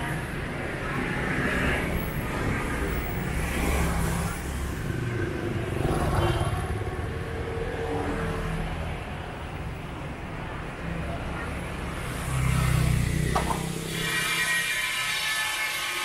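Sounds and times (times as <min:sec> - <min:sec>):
rumble of engines and tyres: 0:00.0 - 0:16.0
motor scooter passing: 0:11.9 - 0:14.7.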